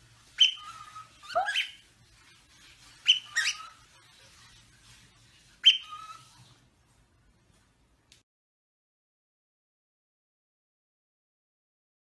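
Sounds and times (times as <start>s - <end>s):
cockatiel whistled chirps: 0.4s - 1.8s, 3.0s - 3.8s, 5.6s - 6.4s.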